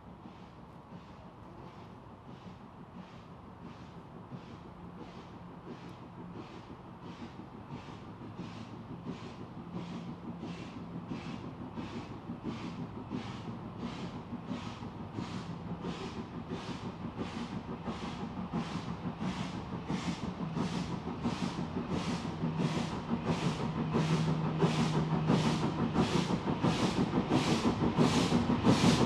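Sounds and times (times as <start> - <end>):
steam locomotive exhaust beats: 0.0 - 29.0.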